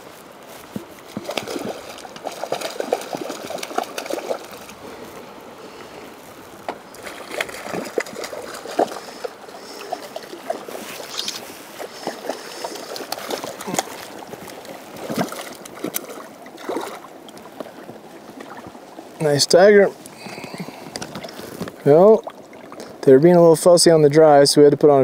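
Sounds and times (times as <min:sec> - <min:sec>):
footsteps: 0:00.0 - 0:16.0
fish splashing in shallow water: 0:00.0 - 0:23.0.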